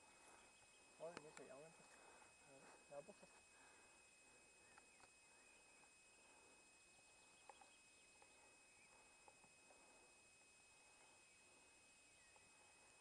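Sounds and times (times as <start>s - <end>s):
faint outdoor hiss: 0.0s - 13.0s
soft ticks: 1.1s - 1.5s.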